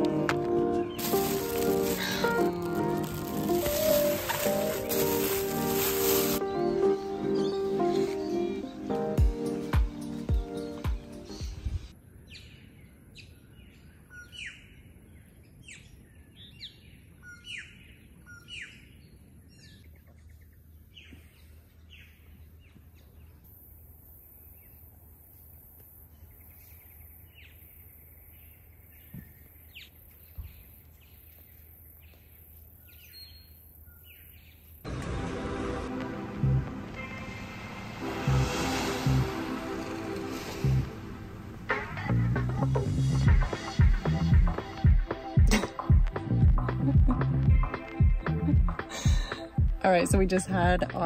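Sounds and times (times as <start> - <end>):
birds calling: 0.0 - 12.6.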